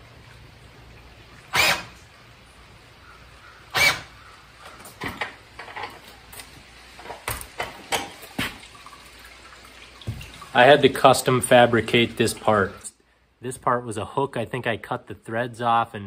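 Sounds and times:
cordless drill driving screw: 1.5 - 1.9, 3.7 - 4.1.

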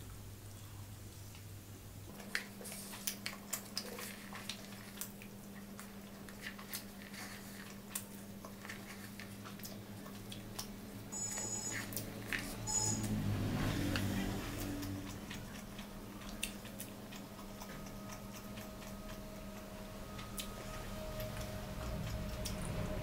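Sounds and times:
low steady hum: 0.0 - 23.0
chewing: 2.1 - 23.0
lip smacks: 14.0 - 22.8.

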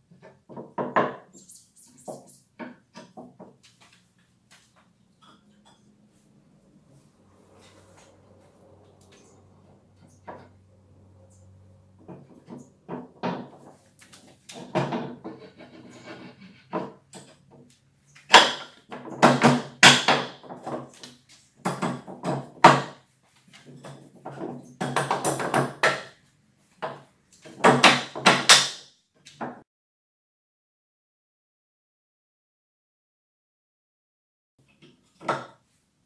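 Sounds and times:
wood parts scraping: 13.5 - 17.4.

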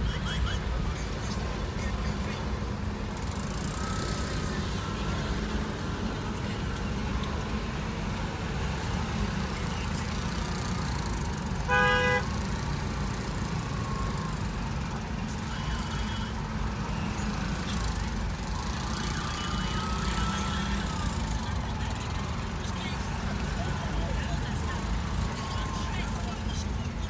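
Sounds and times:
car engine rumble: 0.0 - 27.0
traffic: 0.0 - 27.0
vehicle horn toot: 11.6 - 12.4.

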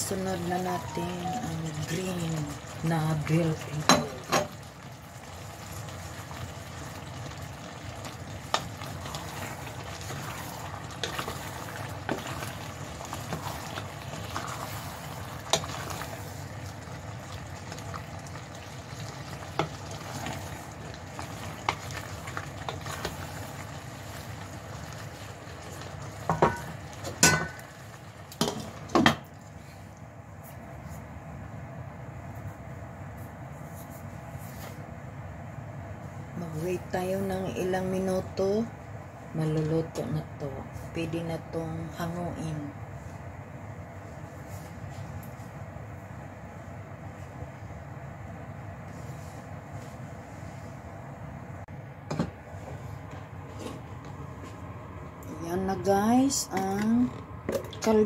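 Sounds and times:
stew bubbling and sizzling: 0.0 - 30.9.

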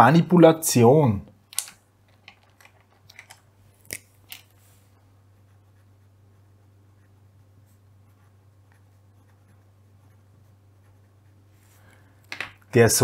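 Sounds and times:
steady low hum: 0.7 - 13.0
pen scratching on paper: 5.3 - 11.7.

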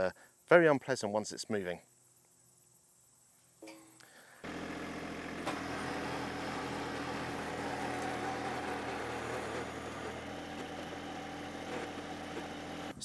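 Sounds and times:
auger boring into soil: 4.4 - 13.0
diesel tractor engine running: 4.4 - 13.0.

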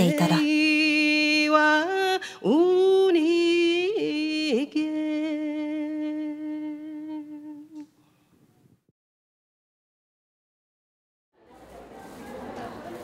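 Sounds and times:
person singing wordless melody: 0.0 - 7.9.

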